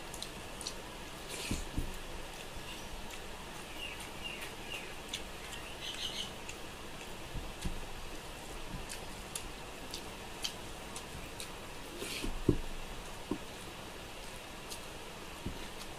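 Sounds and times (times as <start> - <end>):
wet chewing and lip smacking: 0.0 - 12.4
fingers squishing food on plate: 0.0 - 15.9.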